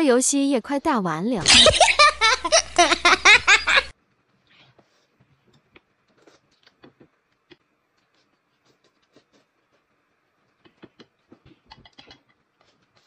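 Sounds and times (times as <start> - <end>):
high-pitched giggling laughter: 1.4 - 3.9
chopsticks clicking while eating: 10.5 - 12.4.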